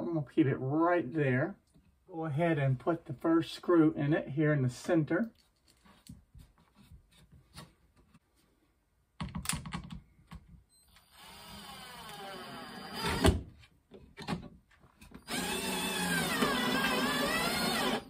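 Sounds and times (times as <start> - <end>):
cordless drill driving screw: 10.9 - 13.3, 15.2 - 18.0.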